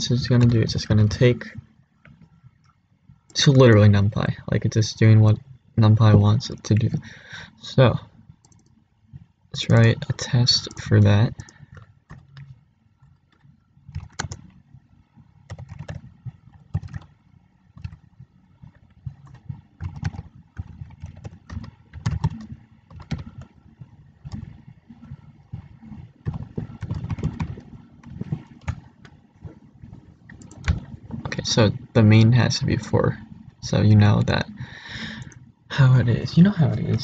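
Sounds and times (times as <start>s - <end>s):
keyboard typing clicks: 8.4s - 8.8s, 10.6s - 14.6s, 15.5s - 23.6s, 24.2s - 25.2s, 26.2s - 29.2s, 30.3s - 31.2s.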